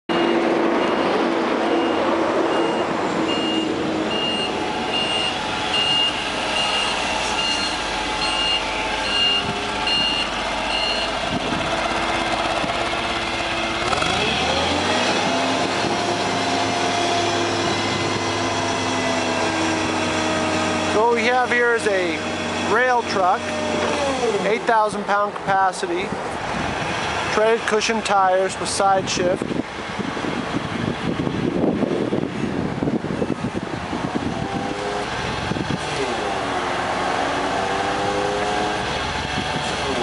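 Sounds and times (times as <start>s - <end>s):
backup alarm beeping: 0.1s - 11.2s
forklift engine running: 0.1s - 25.5s, 29.4s - 40.0s.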